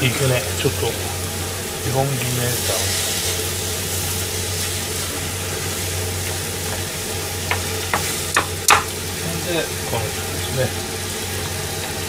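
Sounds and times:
vegetables sizzling in a frying pan: 0:00.0 - 0:12.0
spatula knocking against pan: 0:07.5 - 0:09.0.

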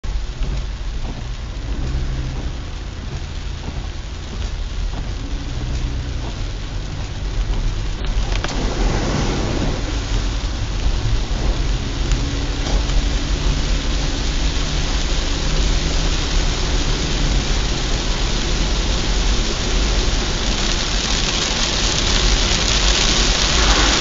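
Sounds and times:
car driving on wet road: 0:00.0 - 0:24.0
heavy rain on car roof: 0:00.0 - 0:24.0
rushing swell: 0:20.1 - 0:24.0.

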